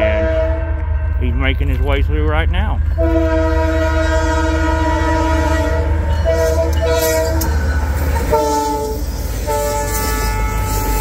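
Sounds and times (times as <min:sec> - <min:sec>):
locomotive air horn blasts: 0:00.0 - 0:00.9, 0:03.0 - 0:07.6, 0:08.2 - 0:11.0
locomotive rumble: 0:00.0 - 0:11.0.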